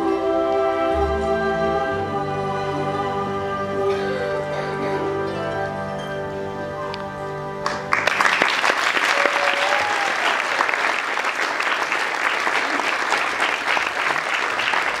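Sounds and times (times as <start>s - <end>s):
held music chord: 0.0s - 8.0s
audience applauding: 7.6s - 15.0s.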